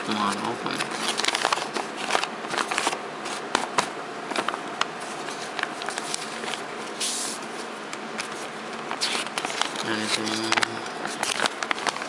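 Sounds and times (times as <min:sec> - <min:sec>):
paper crinkling and rustling: 0:00.1 - 0:12.0
envelope tearing open: 0:00.2 - 0:03.0, 0:08.9 - 0:12.0.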